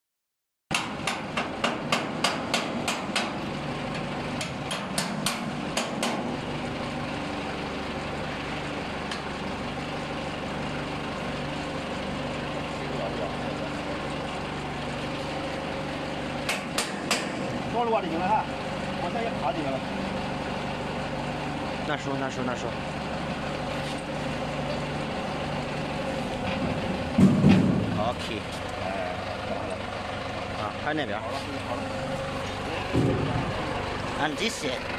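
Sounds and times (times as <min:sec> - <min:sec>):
tool tapping on metal: 0:00.7 - 0:06.3, 0:16.4 - 0:17.4
engine running: 0:00.7 - 0:34.9.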